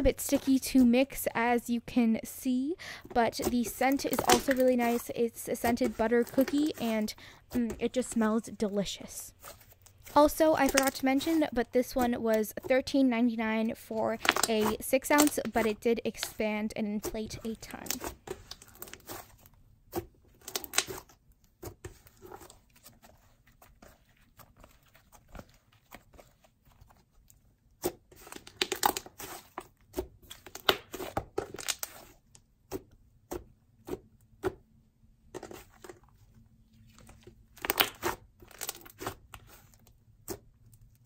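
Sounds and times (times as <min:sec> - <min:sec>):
slime crackling and squelching: 0:02.5 - 0:34.5, 0:35.4 - 0:41.0.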